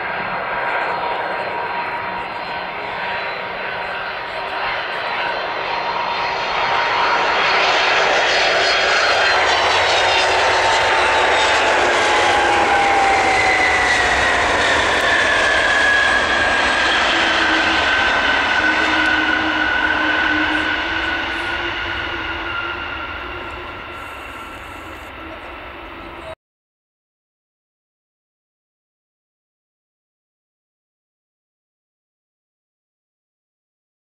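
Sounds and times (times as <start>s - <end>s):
jet engines rushing and whining: 0.0s - 26.4s.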